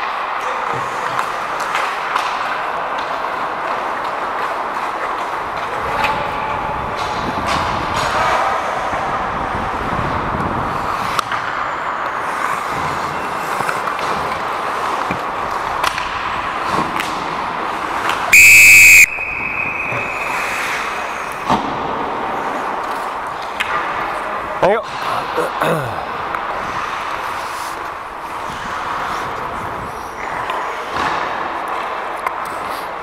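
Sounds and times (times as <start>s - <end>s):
clicks of sticks and puck: 0.0s - 9.0s, 10.4s - 18.3s, 19.8s - 24.3s, 26.3s - 33.0s
skates scraping ice: 0.0s - 18.3s, 19.7s - 25.3s, 26.3s - 33.0s
referee's whistle blown: 18.3s - 20.7s.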